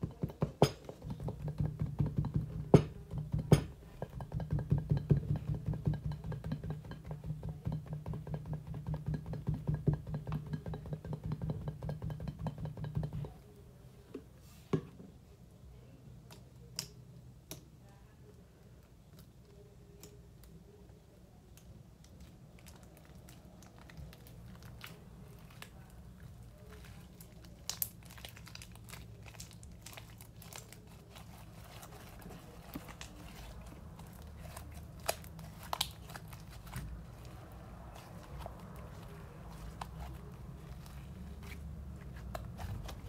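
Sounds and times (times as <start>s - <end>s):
slime squished by hand: 22.0s - 43.0s.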